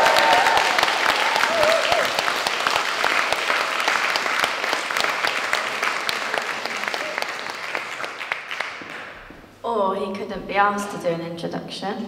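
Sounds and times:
audience applause: 0:00.0 - 0:09.2.

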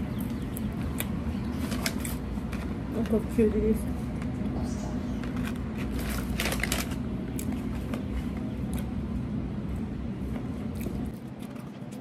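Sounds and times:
steady low rumble: 0:00.0 - 0:12.0
cardboard carton crackling: 0:05.4 - 0:07.0.

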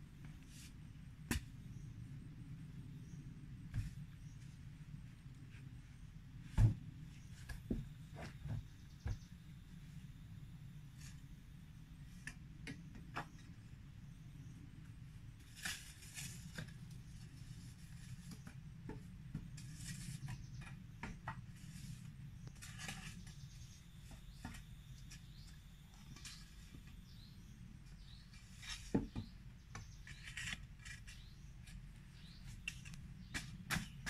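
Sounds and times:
low steady hum: 0:00.0 - 0:34.0
hand tool digging into soil: 0:29.8 - 0:34.0.

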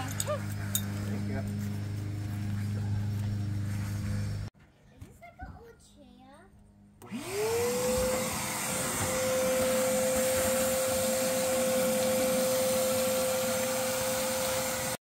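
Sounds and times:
shop vacuum motor whine: 0:00.0 - 0:04.5, 0:07.0 - 0:15.0
vacuum hose rushing air: 0:07.0 - 0:15.0.

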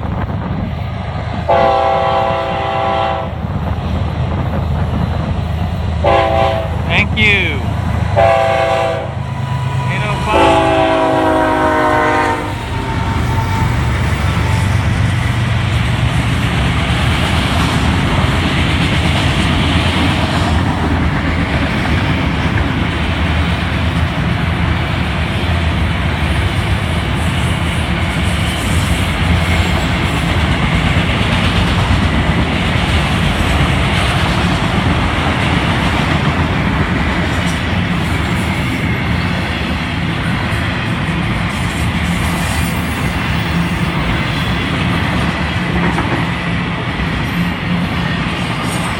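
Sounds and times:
freight train wheels rumbling: 0:00.0 - 0:48.9
locomotive horn chord: 0:01.5 - 0:03.3, 0:06.0 - 0:07.2, 0:08.2 - 0:13.6.

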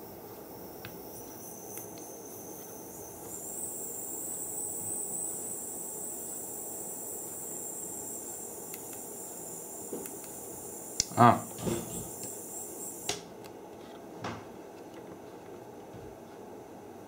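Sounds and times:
mist maker high-pitched whine: 0:00.0 - 0:13.2.

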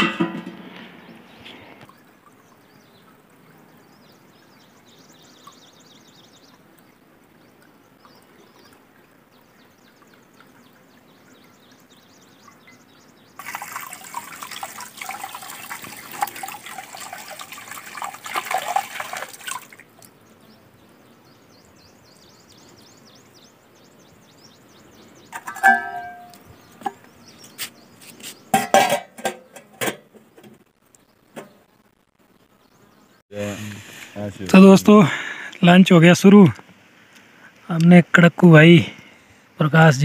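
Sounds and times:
water trickling into metal bucket: 0:00.0 - 0:20.2, 0:25.2 - 0:27.5, 0:28.4 - 0:30.4
water splashing on stone slabs: 0:13.4 - 0:19.9.

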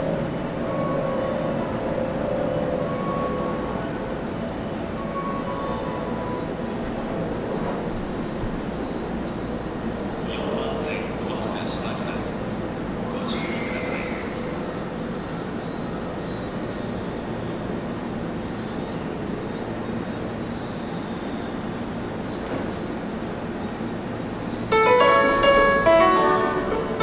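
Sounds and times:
electric train humming: 0:00.0 - 0:27.0
station ambience: 0:00.0 - 0:27.0
melody of bright clear notes: 0:24.7 - 0:27.0.

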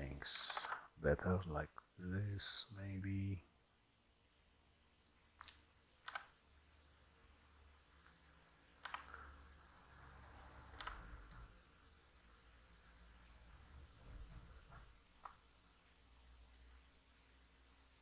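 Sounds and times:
faint low hum: 0:00.0 - 0:18.0
keyboard and mouse clicks: 0:00.4 - 0:00.9, 0:05.0 - 0:06.4, 0:08.8 - 0:09.2, 0:10.0 - 0:11.5, 0:15.1 - 0:15.4.

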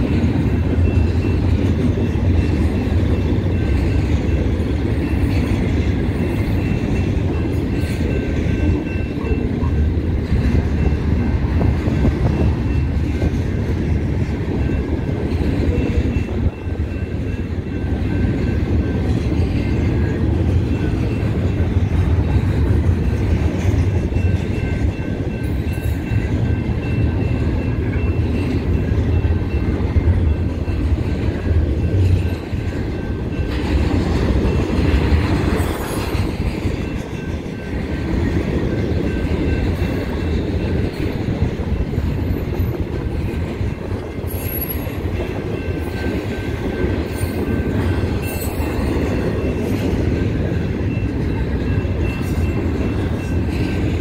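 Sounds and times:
freight train rumbling past: 0:00.0 - 0:54.0.

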